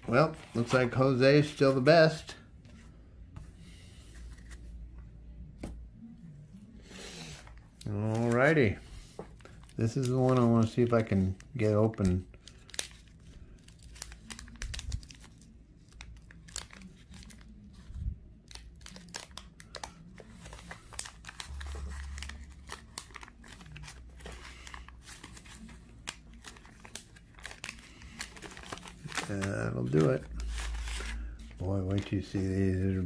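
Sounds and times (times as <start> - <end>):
wax paper crinkling: 7.8 - 33.0.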